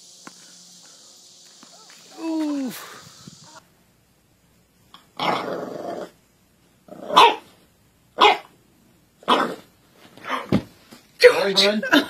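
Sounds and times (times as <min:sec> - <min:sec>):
puppy growling: 0:05.2 - 0:06.2
puppy barking: 0:07.0 - 0:07.5, 0:08.2 - 0:08.5, 0:09.3 - 0:09.6.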